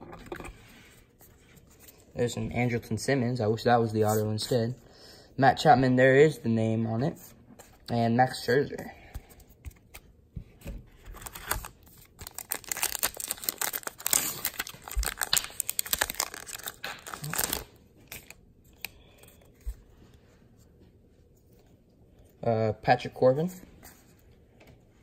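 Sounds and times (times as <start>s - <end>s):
wrapper tearing and crinkling: 11.1s - 18.4s.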